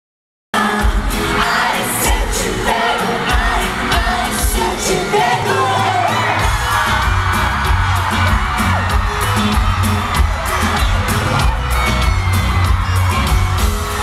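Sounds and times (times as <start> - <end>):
men singing pop music: 0.6 - 14.0
crowd screaming: 4.8 - 14.0
strong bass beat: 6.4 - 14.0.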